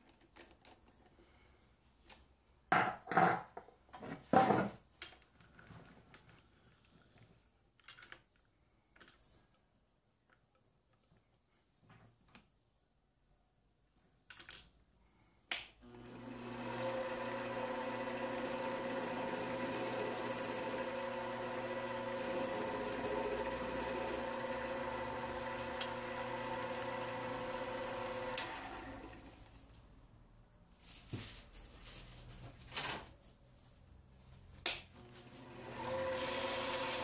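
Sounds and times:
lathe motor whining: 15.8s - 29.3s, 35.2s - 37.0s.

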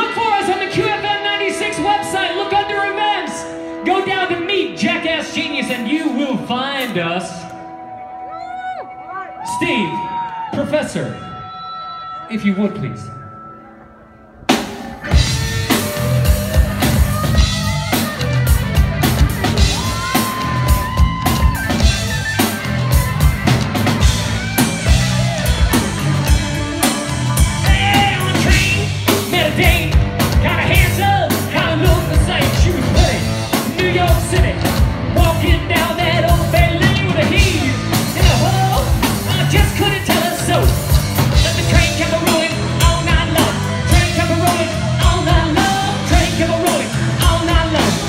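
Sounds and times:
live rock band playing: 0.0s - 9.6s, 13.1s - 48.0s
male lead vocal: 27.6s - 48.0s.

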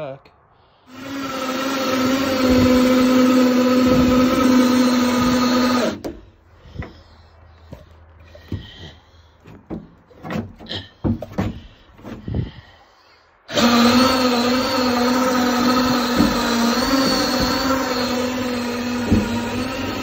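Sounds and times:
cordless drill whining: 0.9s - 7.0s, 13.5s - 20.0s.

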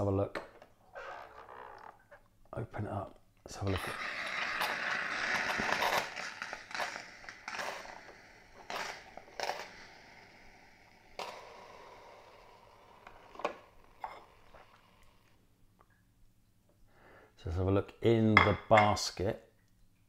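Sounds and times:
coffee maker hissing and crackling: 3.5s - 15.4s.

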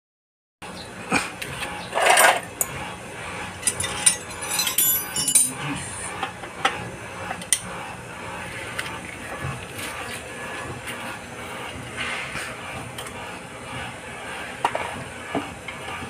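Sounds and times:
metallic rattle: 3.6s - 5.6s
metal hand tools clinking: 3.6s - 5.7s.

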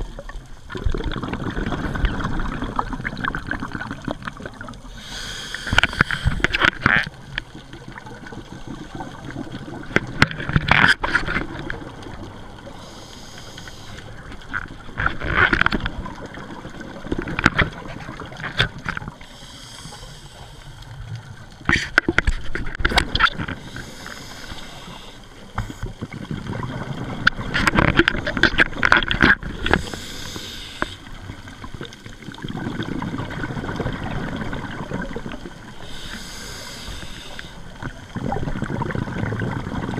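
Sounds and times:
exhaled bubbles gurgling: 0.0s - 39.9s
regulator inhale hiss: 4.9s - 6.6s, 12.7s - 14.2s, 19.1s - 21.0s, 23.6s - 25.5s, 29.6s - 31.1s, 35.8s - 37.7s.

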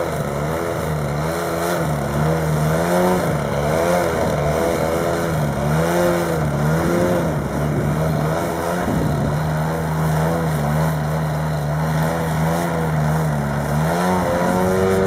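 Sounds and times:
model plane propeller drone: 0.0s - 15.0s.

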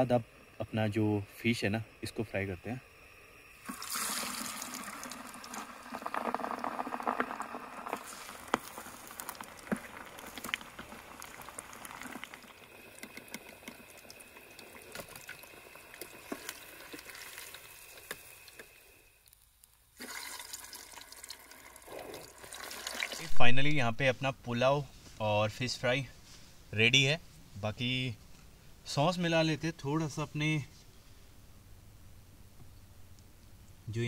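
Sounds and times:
fish sizzling in hot oil: 3.6s - 23.3s
oil crackling and popping: 3.6s - 23.3s.

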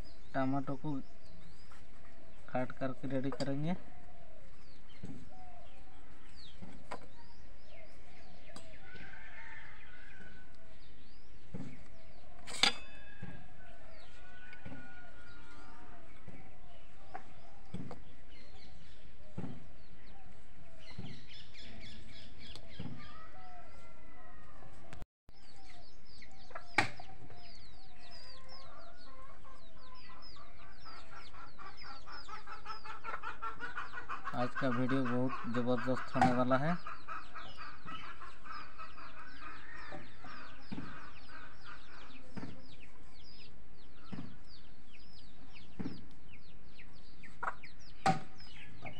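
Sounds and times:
birds calling: 0.0s - 48.9s
chickens clucking: 25.6s - 48.9s.

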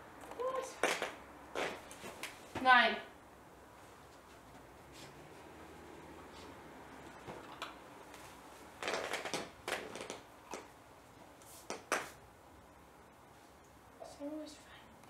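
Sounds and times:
puppy rustling on dog bed: 3.7s - 9.3s.

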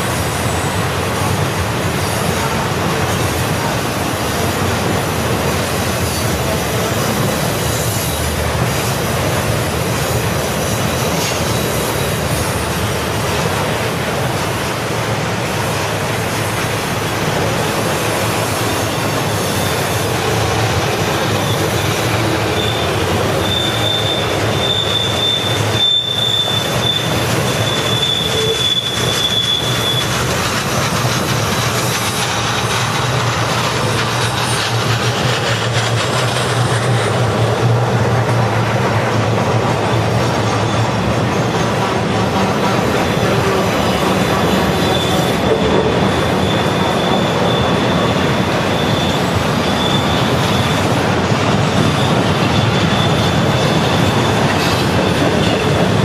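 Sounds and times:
model train wheels rumbling: 0.0s - 56.0s
high squeal: 16.4s - 30.4s, 43.5s - 55.8s.

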